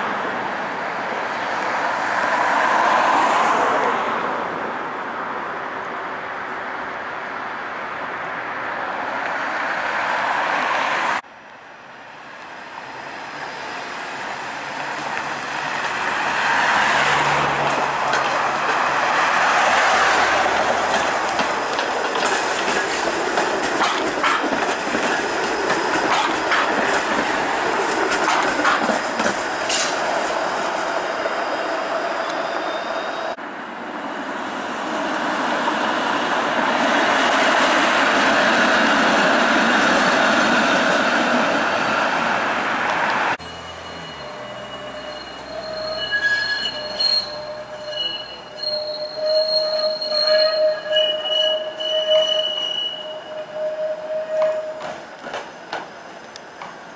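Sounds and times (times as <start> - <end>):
streetcar running on rails: 0.0 - 56.9
wheels clicking on rails: 14.9 - 30.0.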